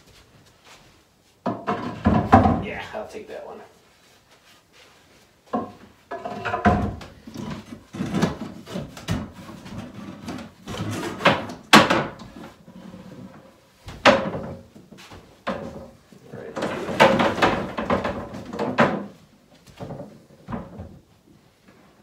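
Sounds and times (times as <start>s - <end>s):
wooden stools being moved: 0.6s - 2.9s, 4.4s - 21.1s
wooden table knocks and clunks: 1.4s - 2.6s, 5.5s - 7.1s, 11.2s - 12.3s, 14.0s - 14.7s, 16.6s - 19.2s.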